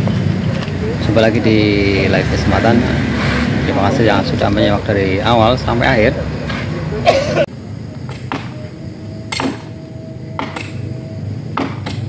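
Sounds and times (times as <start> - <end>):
sharp short knocks: 11.6 - 12.0.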